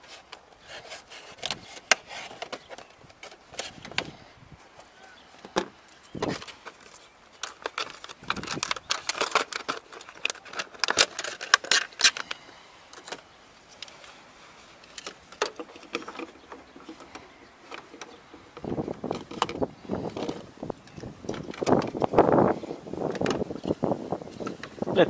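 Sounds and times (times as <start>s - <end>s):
plastic packaging crackling: 5.9s - 24.8s.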